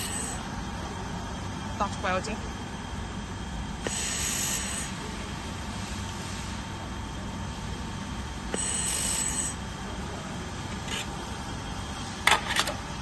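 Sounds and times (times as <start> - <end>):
laser welder hiss: 0.0 - 0.4, 3.8 - 5.0, 8.5 - 9.6
steady machine hum: 0.0 - 13.0.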